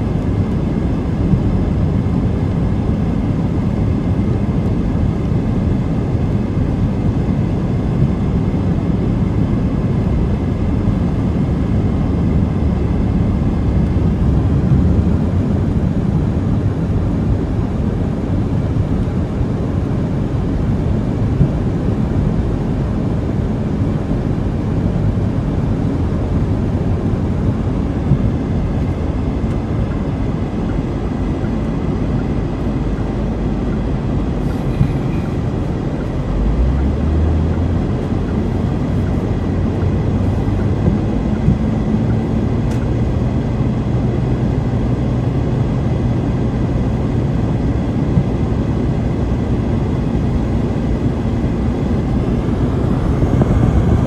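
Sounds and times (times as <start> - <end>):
car engine rumble: 0.0 - 54.0.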